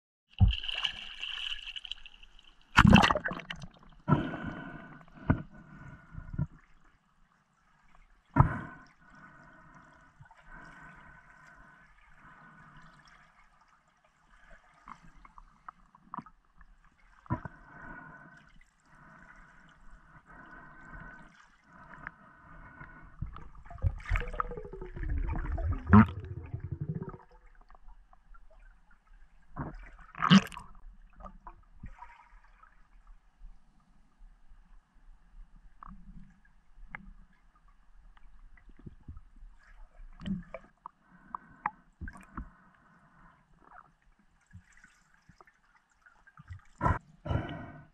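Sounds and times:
underwater water bubbling: 0.3s - 6.9s, 14.2s - 33.0s, 35.6s - 45.5s.

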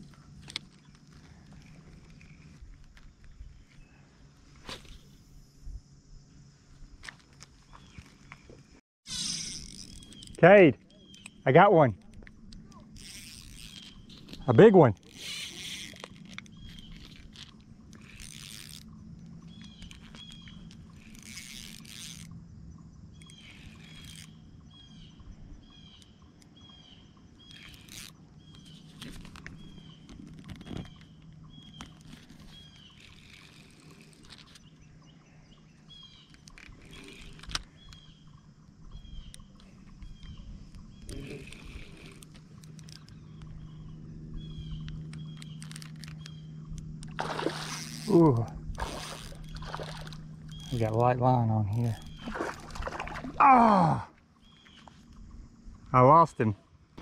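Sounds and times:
low steady hum: 0.0s - 57.0s
short squeak: 9.0s - 10.4s
fishing reel cranking: 9.1s - 10.4s, 12.6s - 22.4s, 23.1s - 24.5s, 27.4s - 34.7s, 40.9s - 43.3s, 44.9s - 51.0s.

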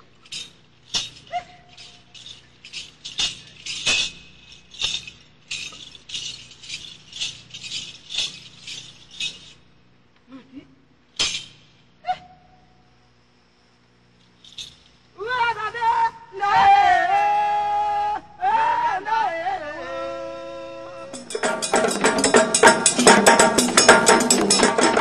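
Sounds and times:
rhythmic percussive clicks: 21.1s - 25.0s.

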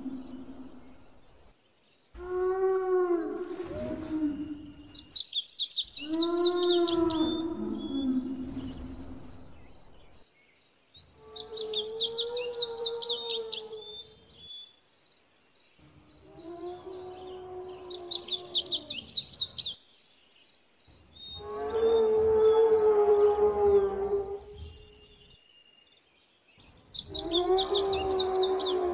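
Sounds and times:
low dinosaur call: 0.0s - 1.0s, 6.0s - 9.5s
birds chirping: 0.0s - 14.6s, 15.2s - 25.5s, 26.6s - 28.9s.

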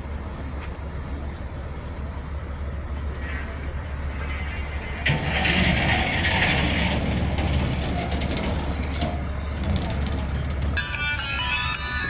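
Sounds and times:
boat diesel engine rumbling: 0.0s - 12.0s
mechanical rattle and clatter: 4.2s - 11.0s.

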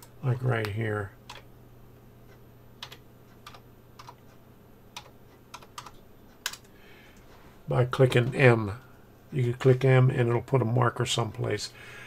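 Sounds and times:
keyboard and mouse clicking: 0.6s - 1.5s, 2.8s - 4.2s, 5.0s - 6.7s.

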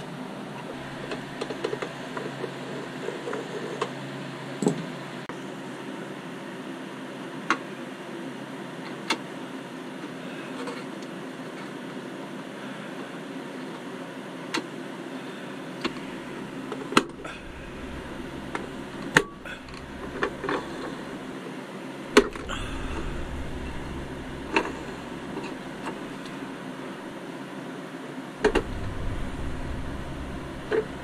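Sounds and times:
steady background hum: 0.0s - 31.0s.

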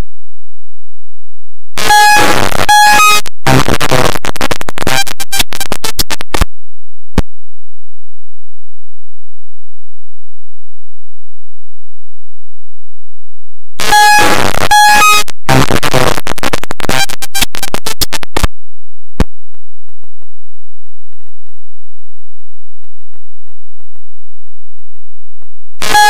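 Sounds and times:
harsh electronic noise: 1.8s - 6.5s, 13.8s - 18.5s, 25.8s - 26.0s
rapid crackling: 1.8s - 6.5s, 13.8s - 18.5s
buzzing tone: 1.8s - 6.6s, 13.8s - 26.0s
click: 15.9s - 18.5s.

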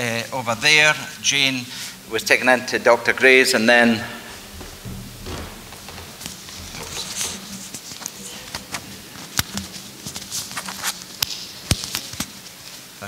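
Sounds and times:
cloth rustling against microphone: 4.0s - 12.9s
microphone clicks and knocks: 4.2s - 8.8s.

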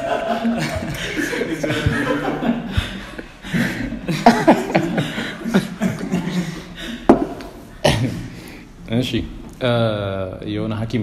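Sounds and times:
men laughing: 0.0s - 8.3s.

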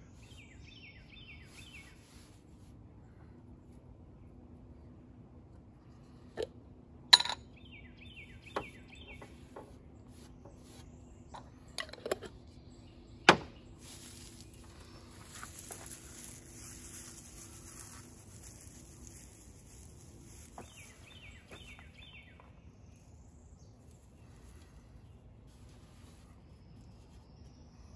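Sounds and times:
pine needles rustling: 0.0s - 3.8s, 13.6s - 27.8s.

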